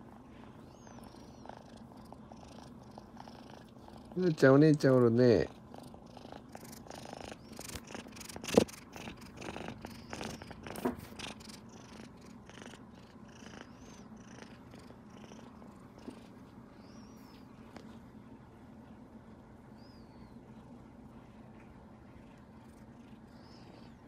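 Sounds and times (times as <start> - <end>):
kitten purring loudly: 0.9 - 4.4, 5.4 - 16.3.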